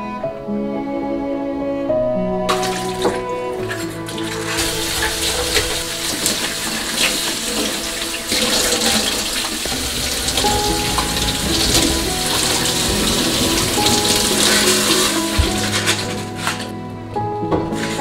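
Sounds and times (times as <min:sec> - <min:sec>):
tap water splashing into sink: 0:02.5 - 0:16.7
containers knocking: 0:02.5 - 0:16.8
dish brush scrubbing: 0:02.5 - 0:16.8, 0:17.6 - 0:18.0.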